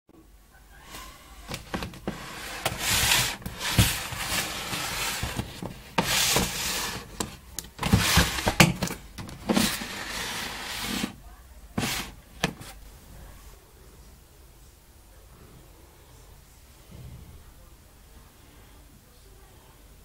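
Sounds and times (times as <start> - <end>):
rustling and rubbing: 1.0 - 11.2, 11.8 - 12.9.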